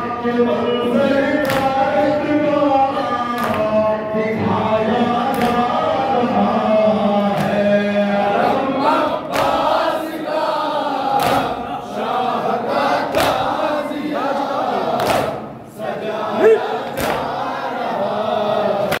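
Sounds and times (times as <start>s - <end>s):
crowd chanting: 4.4s - 19.0s.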